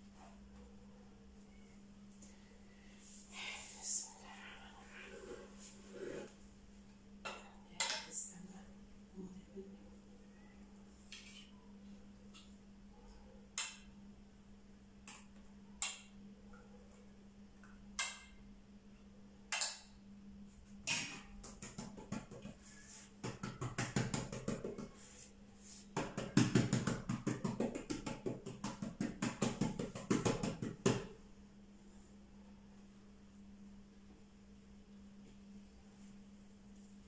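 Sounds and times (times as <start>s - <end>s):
hands patting dough: 20.8s - 31.2s.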